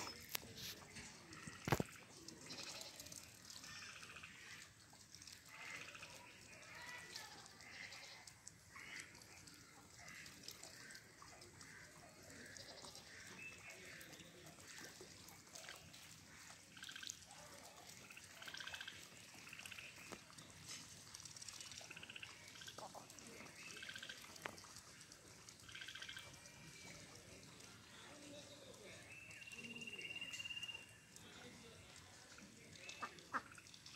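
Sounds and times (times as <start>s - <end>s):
ducks dabbling in water: 0.0s - 33.9s
water drips and splashes: 0.0s - 33.9s
soft duck quacks: 7.6s - 13.8s, 32.9s - 33.8s.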